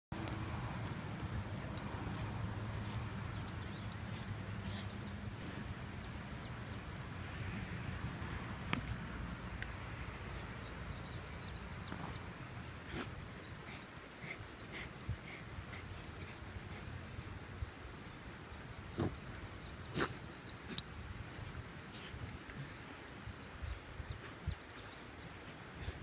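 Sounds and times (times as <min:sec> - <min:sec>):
dog digging and sniffing: 0:00.2 - 0:05.8, 0:08.2 - 0:17.8, 0:19.0 - 0:23.2.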